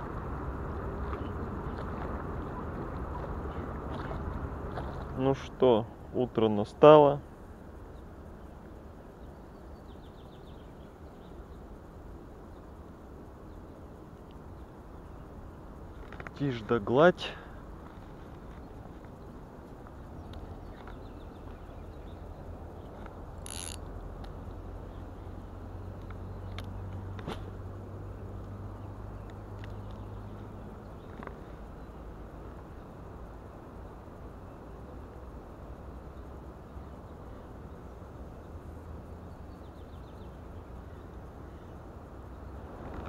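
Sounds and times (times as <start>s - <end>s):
low outdoor rushing background: 0.0s - 43.0s
small birds chirping: 7.8s - 43.0s
fishing reel ticks: 23.4s - 23.8s.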